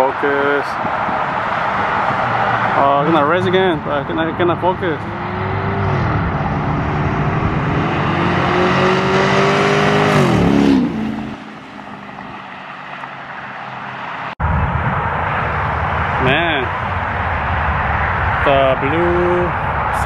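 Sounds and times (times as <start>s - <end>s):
racing car engines passing by: 0.0s - 20.0s.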